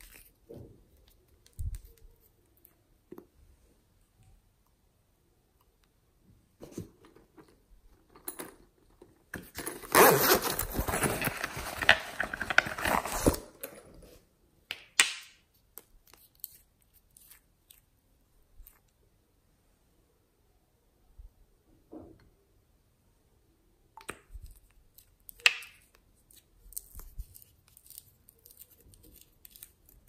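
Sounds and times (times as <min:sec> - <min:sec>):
plastic pencil case rustling: 0:09.3 - 0:14.1.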